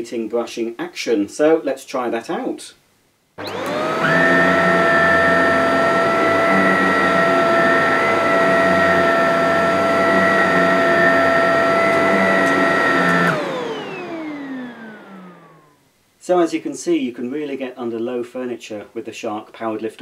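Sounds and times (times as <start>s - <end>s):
vacuum cleaner whining: 3.4s - 15.8s.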